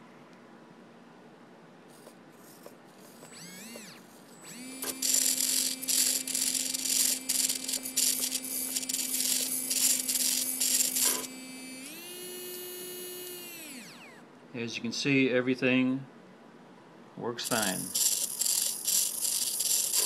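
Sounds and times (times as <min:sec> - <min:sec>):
steady hum: 0:02.0 - 0:14.7, 0:17.2 - 0:20.0
servos buzzing: 0:02.4 - 0:14.2, 0:17.4 - 0:20.0.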